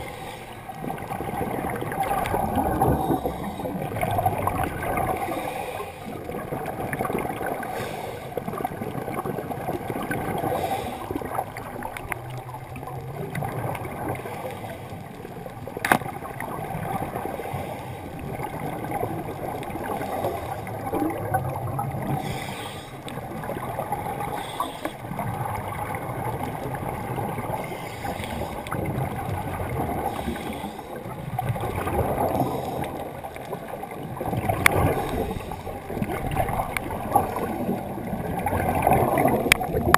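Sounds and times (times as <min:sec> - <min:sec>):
bubbling exhaled air: 0:00.0 - 0:15.3, 0:16.0 - 0:39.9
underwater rushing hiss: 0:07.4 - 0:08.6, 0:10.4 - 0:11.4, 0:22.0 - 0:25.0, 0:26.2 - 0:31.1, 0:33.8 - 0:39.9.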